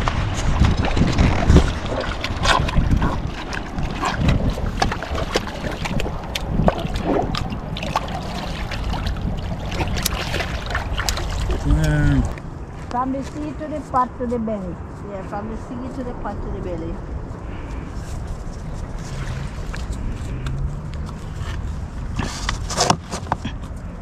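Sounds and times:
small splashes: 0.0 - 12.4
water lapping against rocks: 0.0 - 12.6, 17.5 - 23.7
wind buffeting microphone: 0.0 - 22.6.

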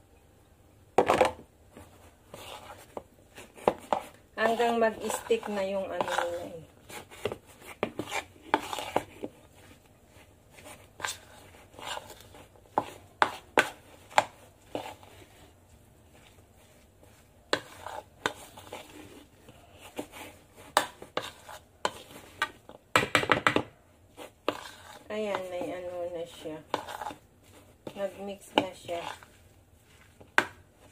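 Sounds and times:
fork stirring batter in bowl: 1.2 - 30.9.

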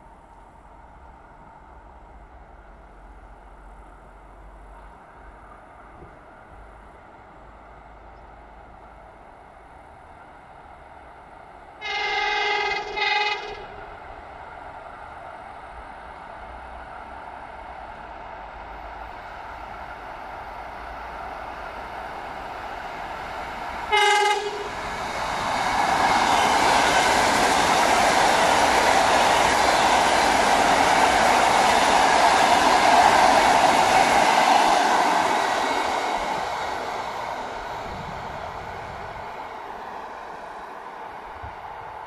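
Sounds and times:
train wheels rushing on rails: 8.6 - 42.0
train horn blast: 11.8 - 13.8, 23.9 - 24.8.

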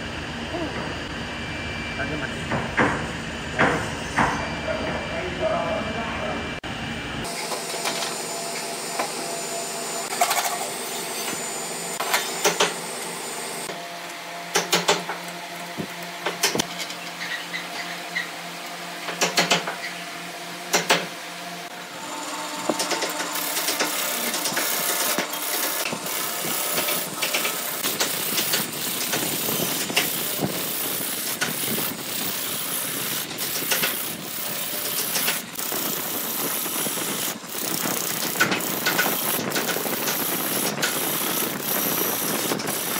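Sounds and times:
wood lathe humming: 21.2 - 42.9.

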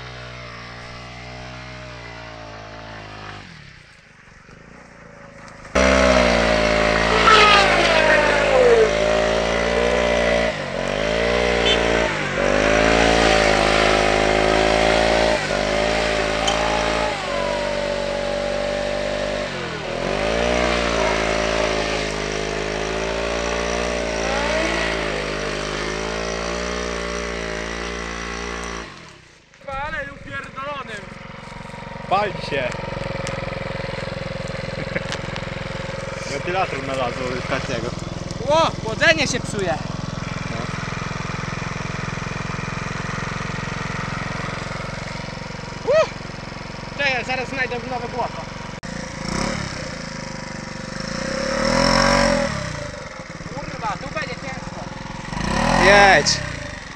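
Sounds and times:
dirt bike engine revving: 0.0 - 29.5, 30.1 - 56.9.

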